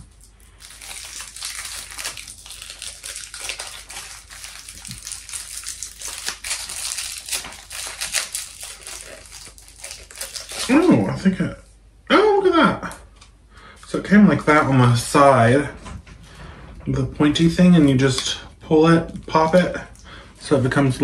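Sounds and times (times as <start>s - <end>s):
plastic wrapper crinkling: 0.0s - 11.2s.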